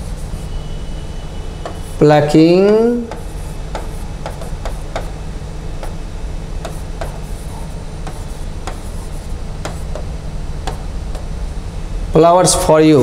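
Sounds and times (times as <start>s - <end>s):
steady low hum: 0.0s - 13.0s
pen tapping on touchscreen: 2.6s - 5.1s, 8.0s - 8.9s, 9.6s - 11.3s.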